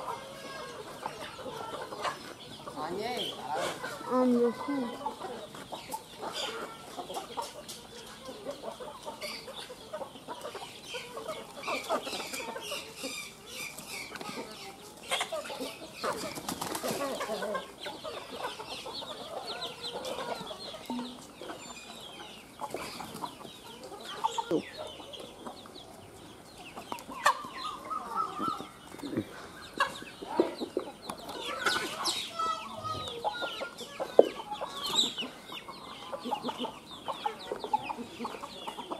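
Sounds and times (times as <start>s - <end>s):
chickens clucking and calling: 0.0s - 38.9s
wings flapping: 16.1s - 17.1s.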